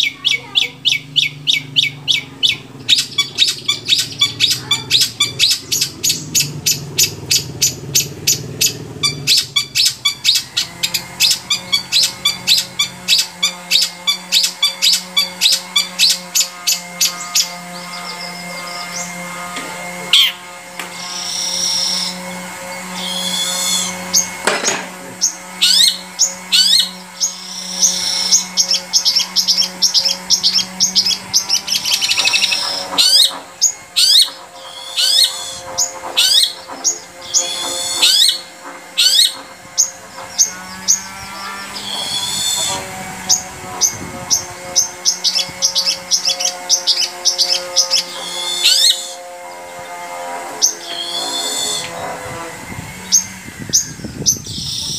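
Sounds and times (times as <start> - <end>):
shrike singing: 0.0 - 54.9
steady low hum: 0.0 - 54.9.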